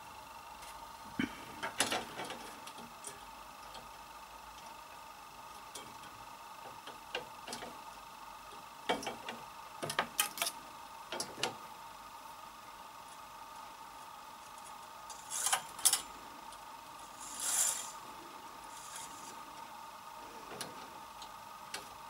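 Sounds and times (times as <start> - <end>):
faint steady hum: 0.0 - 22.0
knitting machine clicks and taps: 8.9 - 11.6.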